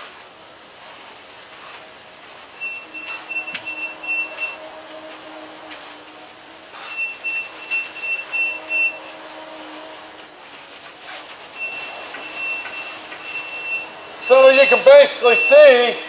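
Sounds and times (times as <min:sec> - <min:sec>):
low steady hum: 0:00.0 - 0:14.3
high electronic beeping: 0:02.6 - 0:04.6, 0:11.6 - 0:16.0.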